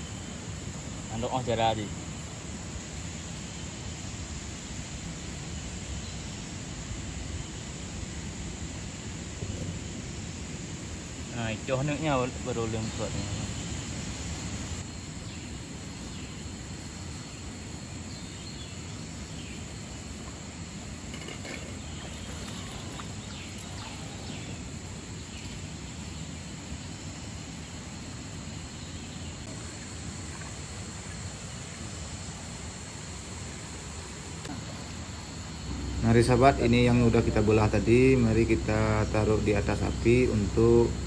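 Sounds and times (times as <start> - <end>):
insects trilling: 0.0 - 41.0
river water flowing: 19.2 - 27.1.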